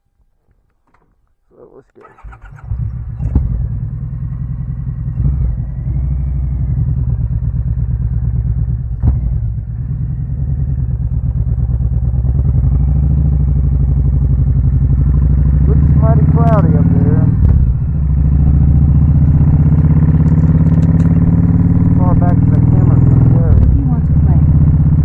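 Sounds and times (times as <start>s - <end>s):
motorcycle engine accelerating: 2.0s - 25.0s
sharp click: 20.2s - 21.2s.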